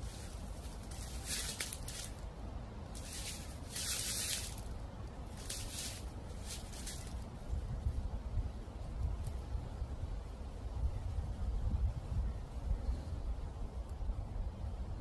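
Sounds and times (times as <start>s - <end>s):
dry leaves rustling and crunching: 0.0s - 8.0s
low rumble of wind: 0.0s - 15.0s.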